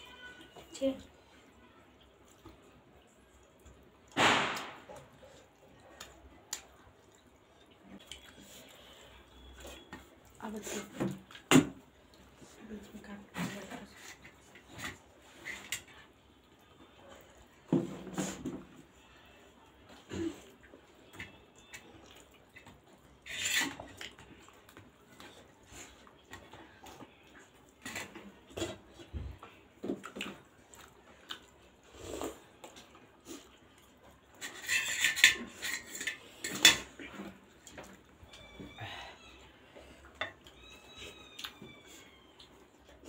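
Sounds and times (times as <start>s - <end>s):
people eating: 4.9s - 43.0s
cutlery clinking on plates: 34.4s - 37.0s.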